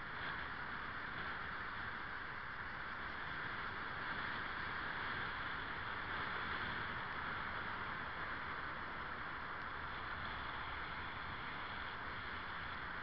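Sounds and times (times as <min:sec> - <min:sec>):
car driving slowly: 0:00.0 - 0:13.0.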